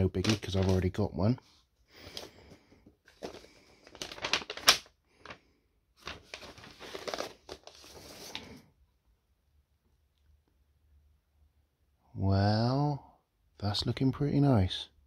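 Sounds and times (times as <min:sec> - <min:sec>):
paper sleeve rustling: 0:00.0 - 0:01.1, 0:02.0 - 0:05.4, 0:06.0 - 0:08.6.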